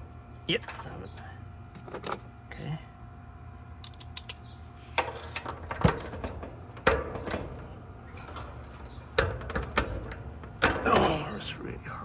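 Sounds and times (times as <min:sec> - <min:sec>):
socket wrench metallic clicks: 0:03.8 - 0:04.4.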